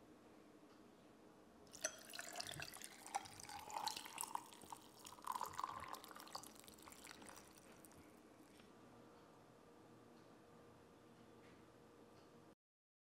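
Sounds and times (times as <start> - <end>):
liquid pouring into glass: 1.7 - 8.1.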